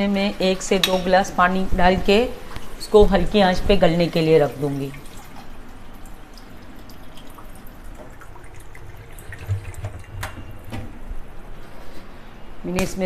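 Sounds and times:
water pouring into a pan: 0:04.9 - 0:10.7.

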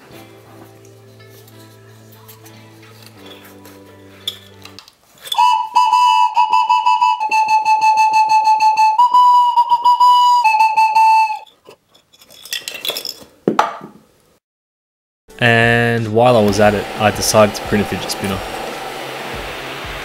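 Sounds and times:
plastic whistle blast: 0:05.3 - 0:11.5.

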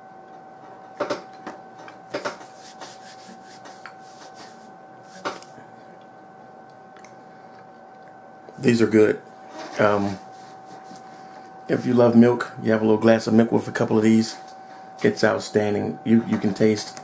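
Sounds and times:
person chewing cookie: 0:05.1 - 0:08.6.

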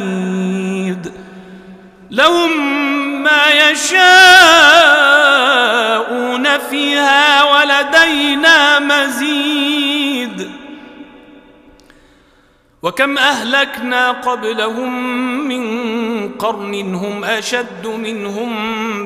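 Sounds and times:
man chanting melodically: 0:00.0 - 0:11.6, 0:12.8 - 0:19.0.

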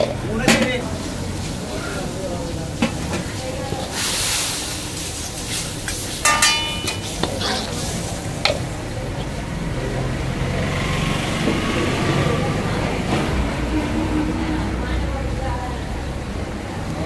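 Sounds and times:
food sizzling in a pan: 0:00.8 - 0:08.8
metal utensils clinking on pan: 0:05.9 - 0:08.6.

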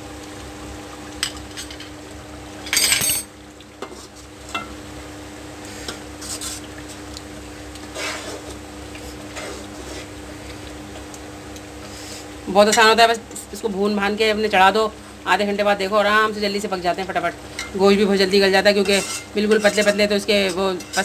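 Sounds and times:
metal spoon scraping a pan: 0:07.9 - 0:08.5, 0:18.8 - 0:21.0.

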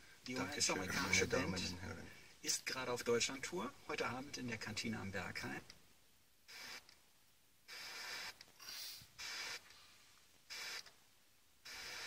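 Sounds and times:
radio static hiss bursts: 0:06.5 - 0:07.0, 0:07.7 - 0:09.7, 0:10.5 - 0:11.0, 0:11.6 - 0:12.0.

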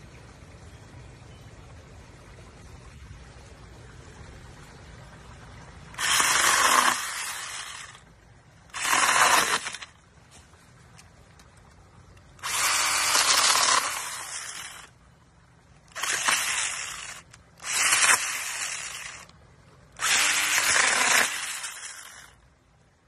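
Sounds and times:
motor whine: 0:06.0 - 0:08.0, 0:08.7 - 0:10.0, 0:12.4 - 0:15.0, 0:15.9 - 0:19.3, 0:20.0 - 0:22.4
pruning saw cutting branches: 0:06.0 - 0:08.0, 0:08.7 - 0:10.0, 0:12.4 - 0:14.9, 0:15.9 - 0:19.3, 0:20.0 - 0:22.4.

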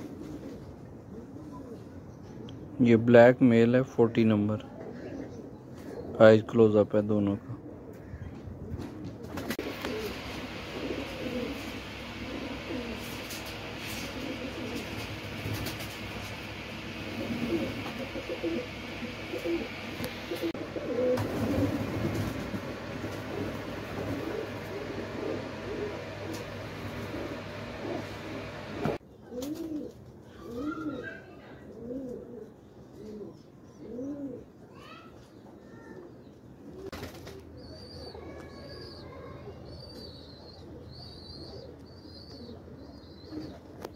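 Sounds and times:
pigeons cooing: 0:00.0 - 0:02.7, 0:04.6 - 0:06.7, 0:07.5 - 0:34.6, 0:36.0 - 0:43.9
birds chirping: 0:09.6 - 0:29.0, 0:37.6 - 0:43.9.

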